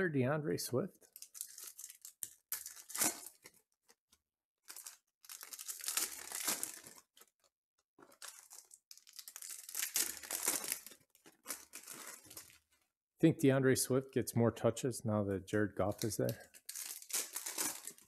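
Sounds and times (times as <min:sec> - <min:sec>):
foil wrapper crinkling and tearing: 0:01.1 - 0:03.6, 0:04.7 - 0:12.8, 0:16.0 - 0:18.0.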